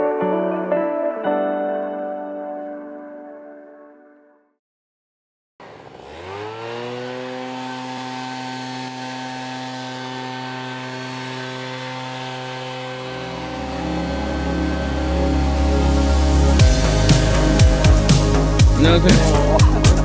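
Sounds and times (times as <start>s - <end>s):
leaf blower engine: 5.6s - 20.0s.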